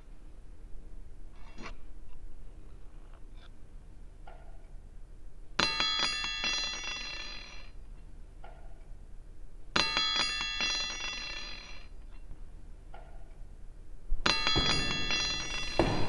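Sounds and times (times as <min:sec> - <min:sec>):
small metal bell ringing: 0:14.3 - 0:16.0.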